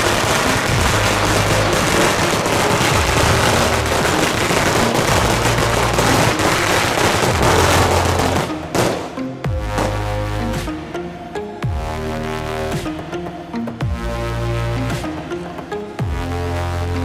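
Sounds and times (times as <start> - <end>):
firecrackers crackling: 0.0 - 10.1.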